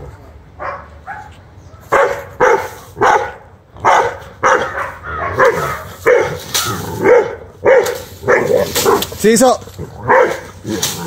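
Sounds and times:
dog barking sharply: 1.9s - 9.1s, 10.1s - 10.5s.

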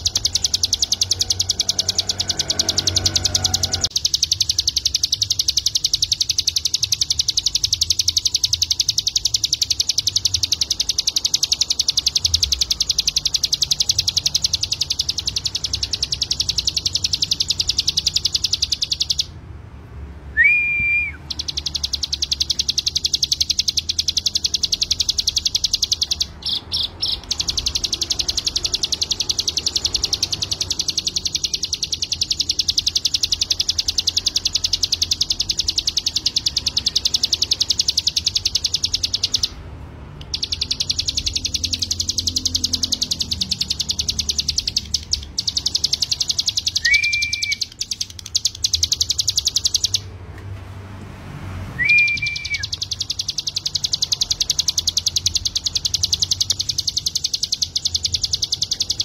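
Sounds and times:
bird singing fast high trills: 0.0s - 19.4s, 20.3s - 39.6s, 40.2s - 50.1s, 51.7s - 59.0s
clear whistled bird note: 46.7s - 47.7s, 51.8s - 52.8s.

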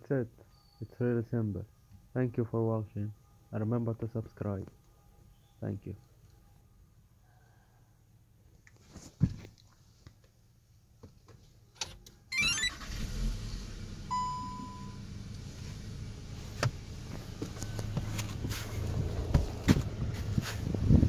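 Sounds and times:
car engine starting and idling: 11.8s - 21.0s
dashboard chime: 14.1s - 15.0s.

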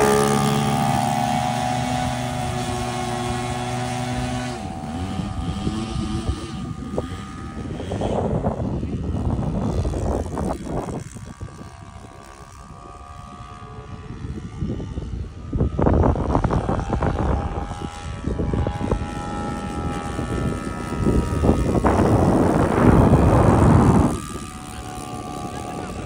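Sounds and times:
model airplane engine drone: 0.0s - 26.0s.

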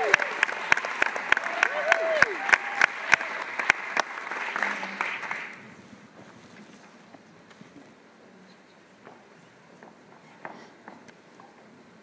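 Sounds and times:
audience applauding: 0.0s - 5.7s.

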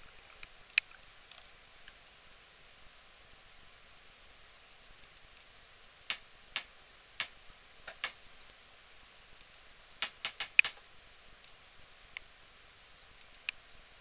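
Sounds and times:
faint steady hiss: 0.0s - 14.0s
sharp light clicks: 6.1s - 8.2s, 10.0s - 10.8s.

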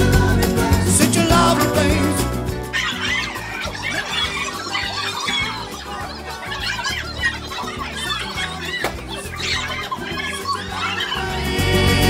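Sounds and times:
latin-style music: 0.0s - 12.0s
children squealing and shrieking: 2.6s - 12.0s.

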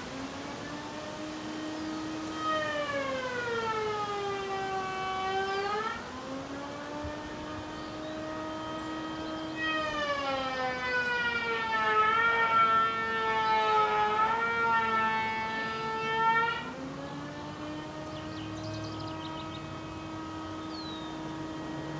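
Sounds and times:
woodworking machine whining: 14.9s - 21.9s.

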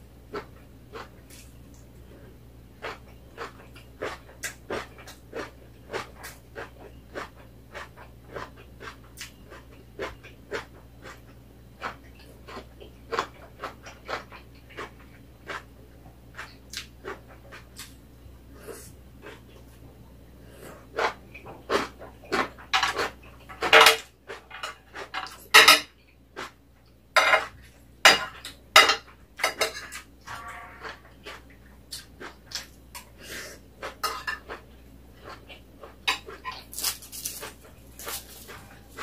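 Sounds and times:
person chewing: 0.3s - 26.6s, 29.6s - 39.0s
utensils clinking on ceramic plates: 23.7s - 25.9s, 28.1s - 30.0s.

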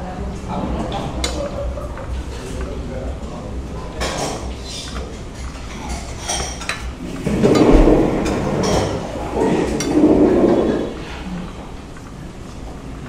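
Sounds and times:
dishes and cutlery clinking: 4.0s - 11.0s.

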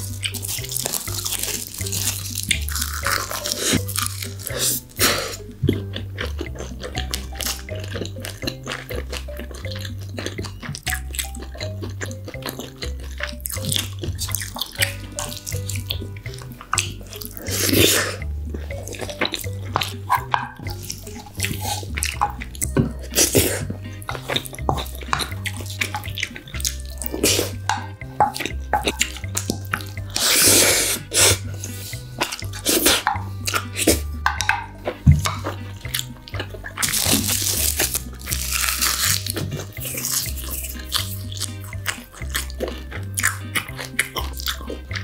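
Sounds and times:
background music with bass line: 0.0s - 45.0s
chewing and lip smacks: 0.0s - 45.0s
loud slurps: 30.2s - 33.1s.

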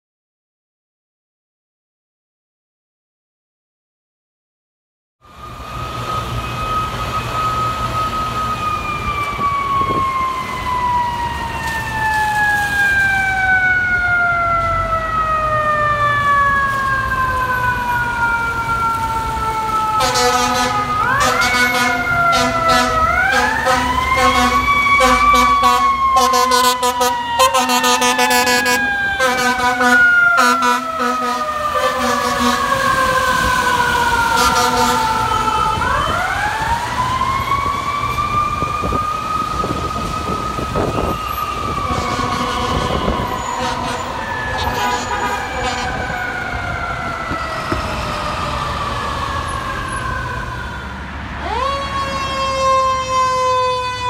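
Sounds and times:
mechanical siren wailing: 5.2s - 54.0s
second siren wail: 5.2s - 54.0s
steady low horn tone: 20.0s - 32.8s, 34.3s - 35.3s, 41.7s - 46.4s.

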